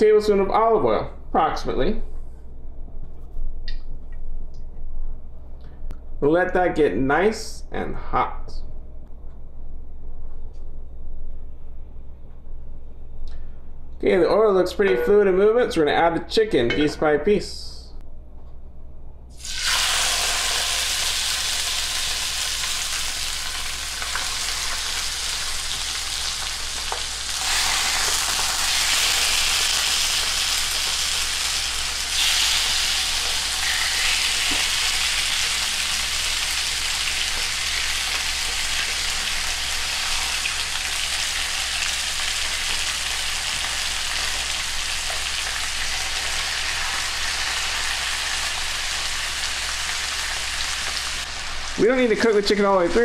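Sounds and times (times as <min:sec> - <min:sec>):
chicken sizzling in hot oil: 0:19.4 - 0:51.8.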